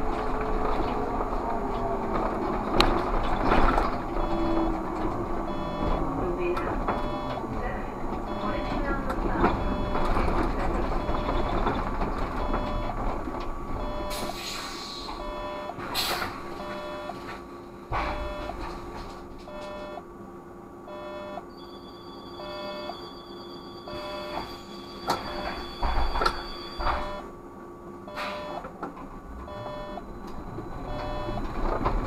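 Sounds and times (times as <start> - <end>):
steady high whine: 0.0 - 32.0
trolleybus running: 0.0 - 32.0
electronic beep: 4.2 - 4.7, 5.5 - 6.0, 6.9 - 7.4, 8.3 - 8.9, 11.0 - 11.6, 12.4 - 13.0, 13.8 - 14.3, 15.2 - 15.8, 16.6 - 17.2, 20.9 - 27.2, 28.1 - 28.6, 29.5 - 30.1, 30.7 - 31.5
sharp knocks: 17.9 - 18.7, 25.3 - 27.2.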